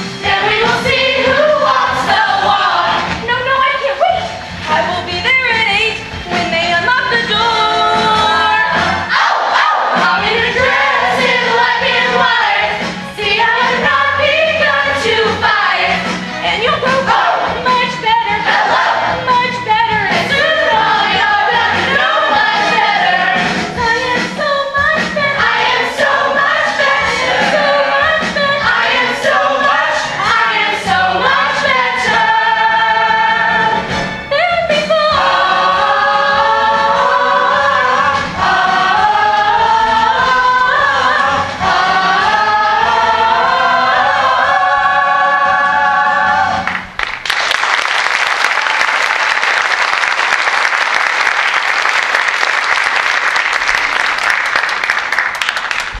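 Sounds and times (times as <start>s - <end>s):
cast singing in chorus: 34.9s - 46.6s
audience applause: 46.6s - 56.0s.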